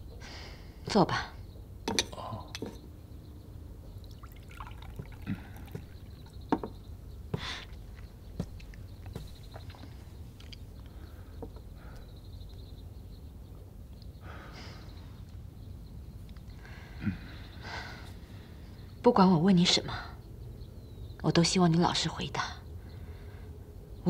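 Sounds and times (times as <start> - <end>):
low room hum: 0.0 - 24.0
teacups clinking: 1.9 - 2.8, 4.1 - 6.8.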